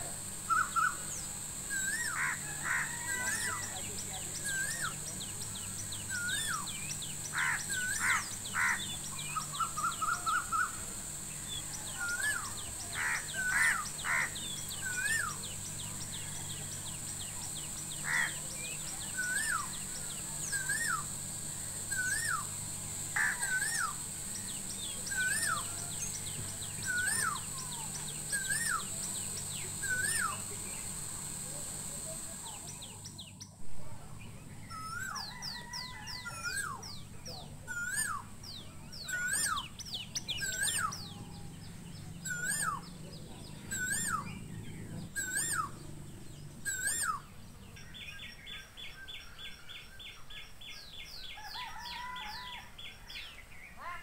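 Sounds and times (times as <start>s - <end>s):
bird trill: 0.0s - 33.6s, 34.2s - 54.0s
harsh bird calls: 0.0s - 50.6s, 51.4s - 54.0s
steady high hiss: 0.0s - 51.6s
birds chirping: 0.0s - 54.0s
bird whistling: 0.5s - 2.3s, 5.6s - 10.8s, 18.1s - 21.1s, 21.9s - 22.5s, 23.2s - 30.6s, 34.7s - 37.0s, 37.7s - 38.3s, 39.0s - 41.2s, 42.2s - 42.9s, 43.7s - 44.4s, 45.2s - 45.8s, 46.7s - 47.3s.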